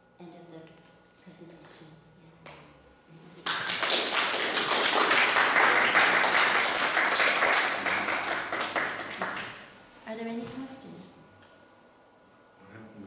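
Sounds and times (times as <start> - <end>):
audience applauding: 3.4 - 9.6.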